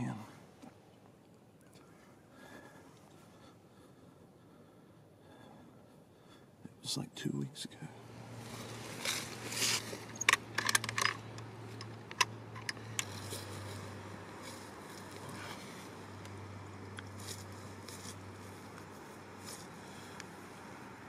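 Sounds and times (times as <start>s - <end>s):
steady low hum: 0.0s - 21.0s
camera being handled: 9.0s - 13.6s.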